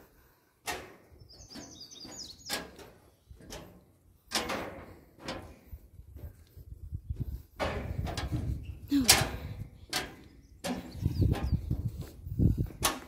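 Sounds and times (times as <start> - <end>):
footsteps on deck and stairs: 0.0 - 13.0
small bird chirping: 1.2 - 2.6.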